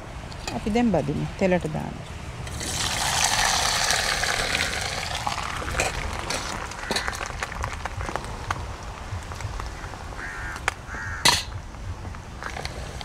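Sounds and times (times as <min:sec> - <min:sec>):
fish roe sizzling in oil: 0:02.5 - 0:07.6
oil popping and spitting: 0:02.5 - 0:08.2.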